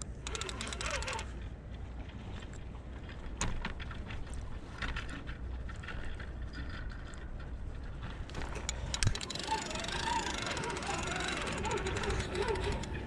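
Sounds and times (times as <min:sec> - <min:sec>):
fishing reel ticking: 0:00.0 - 0:01.3, 0:08.4 - 0:13.0.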